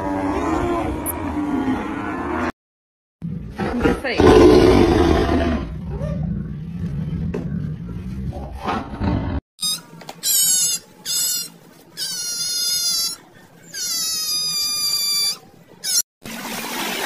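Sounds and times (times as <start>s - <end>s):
high-pitched squealing animal calls: 9.6s - 16.0s.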